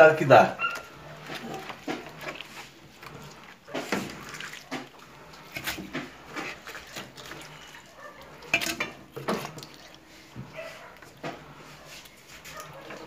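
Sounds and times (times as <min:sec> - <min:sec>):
pot clattering: 0:03.2 - 0:09.9.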